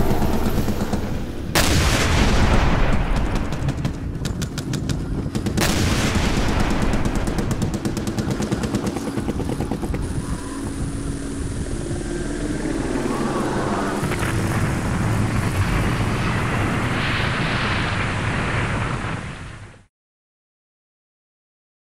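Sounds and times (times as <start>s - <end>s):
machine-gun burst: 1.6s - 10.2s.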